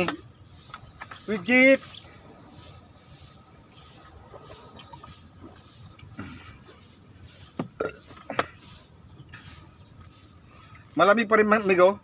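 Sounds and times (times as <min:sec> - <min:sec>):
person swallowing water: 0:07.7 - 0:08.0.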